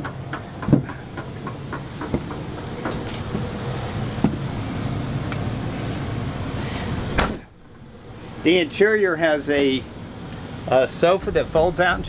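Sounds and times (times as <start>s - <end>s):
sharp knocks: 0.0s - 3.5s
steady low hum: 0.0s - 12.0s
footsteps on carpeted steps: 0.5s - 5.0s.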